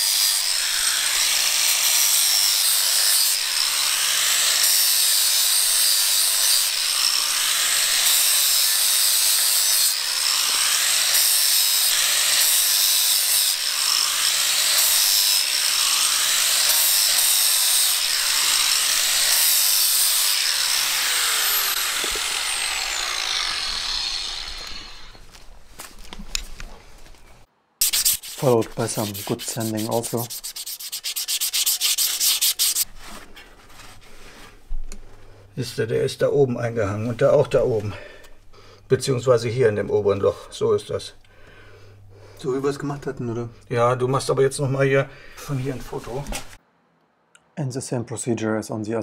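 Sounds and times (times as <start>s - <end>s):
angle grinder whining: 0.0s - 25.4s
grinder scraping metal: 0.0s - 25.4s, 27.8s - 32.9s.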